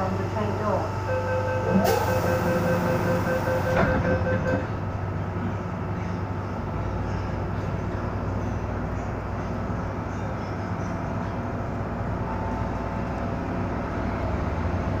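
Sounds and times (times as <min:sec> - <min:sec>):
train low hum: 0:00.0 - 0:15.0
rapid door warning beeps: 0:01.1 - 0:04.6.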